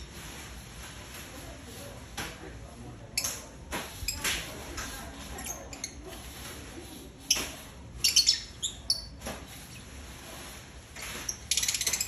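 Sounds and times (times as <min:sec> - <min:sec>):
lovebirds chirping: 0:07.2 - 0:10.2, 0:11.0 - 0:12.0.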